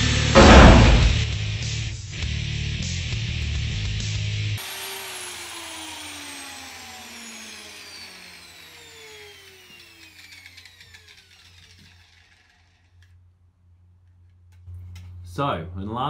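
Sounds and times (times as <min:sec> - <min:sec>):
angle grinder spinning down: 0:04.6 - 0:13.2.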